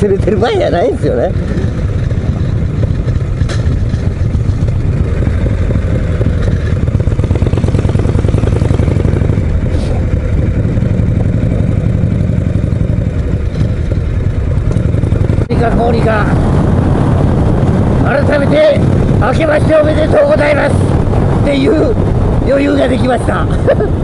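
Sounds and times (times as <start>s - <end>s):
motorcycle engine cruising: 0.0s - 24.0s.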